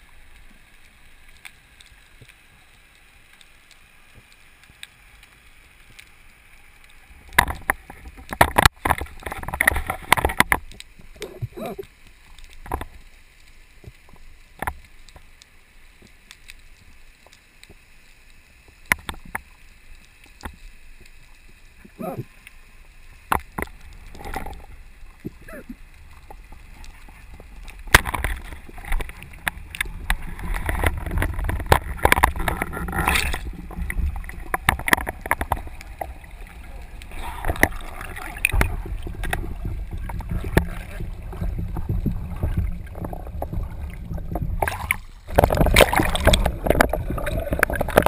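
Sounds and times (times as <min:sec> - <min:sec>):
sharp clicks and knocks underwater: 0:00.0 - 0:48.0
water gurgling: 0:00.0 - 0:48.0
water rushing over housing: 0:27.8 - 0:48.0.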